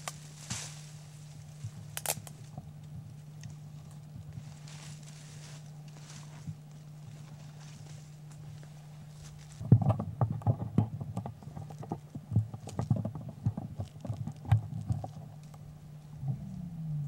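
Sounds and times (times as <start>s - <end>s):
footsteps through dry scrub: 0.0s - 9.7s
twig crackles: 0.0s - 9.7s
steady low hum: 0.0s - 17.0s.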